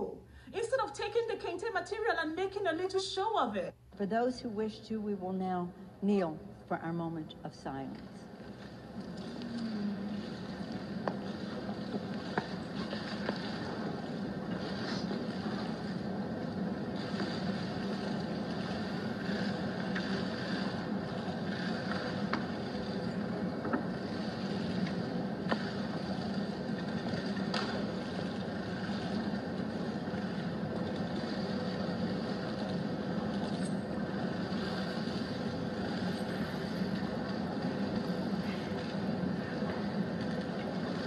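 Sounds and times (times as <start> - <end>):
room hum and hiss: 0.0 - 41.0.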